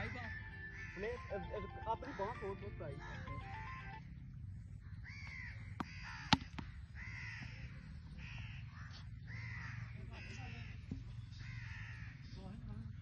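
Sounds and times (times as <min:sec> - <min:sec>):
crows cawing: 0:00.0 - 0:12.7
cricket bat striking ball: 0:05.8 - 0:06.7.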